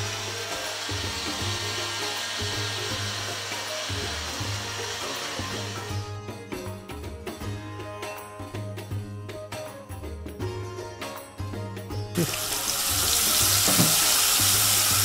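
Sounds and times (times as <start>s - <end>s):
blender motor grinding: 0.0s - 6.1s, 12.2s - 15.0s
background music with beat: 0.0s - 15.0s.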